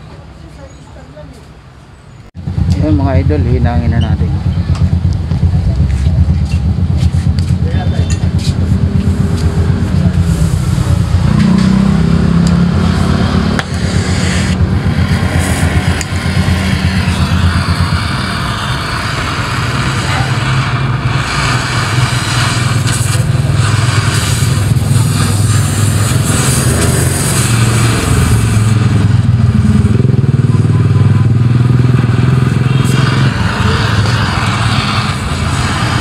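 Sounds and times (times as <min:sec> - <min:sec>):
low mechanical drone: 0:02.4 - 0:36.0
gas torch flame hissing: 0:08.3 - 0:29.5, 0:31.4 - 0:36.0.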